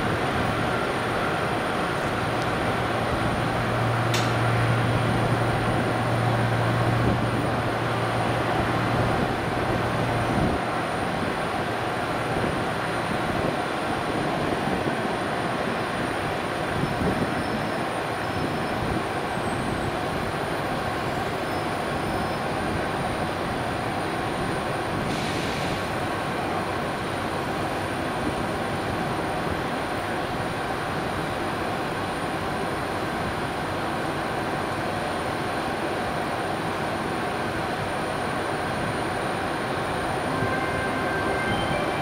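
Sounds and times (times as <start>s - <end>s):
locomotive cooling fans droning: 0.0s - 17.2s.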